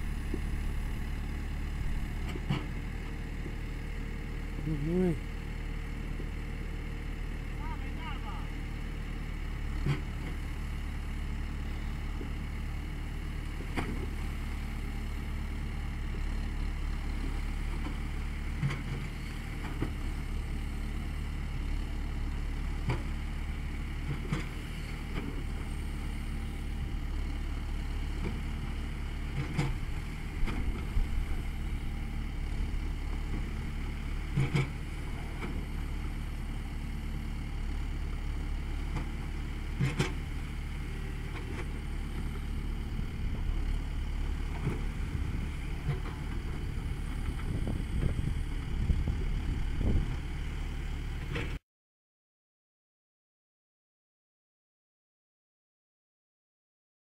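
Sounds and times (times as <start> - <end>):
diesel engine running: 0.0 - 51.6.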